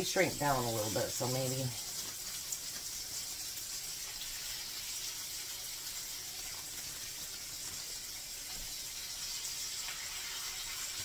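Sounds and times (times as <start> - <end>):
patties sizzling in a skillet: 0.0 - 11.0.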